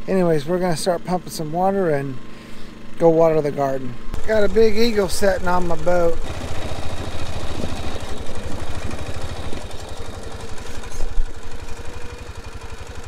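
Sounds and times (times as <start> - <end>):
small water pump engine running: 4.2 - 13.0.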